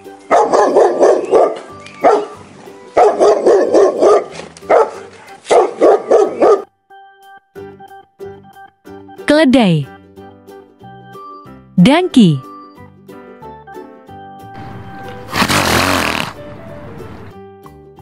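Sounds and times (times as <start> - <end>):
dog barking: 0.3 - 2.4, 3.0 - 6.7.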